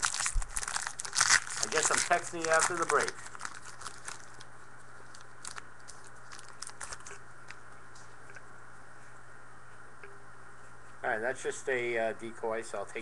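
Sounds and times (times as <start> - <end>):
cards and wrappers handled: 0.0 - 7.6
steady low hum: 0.0 - 13.0.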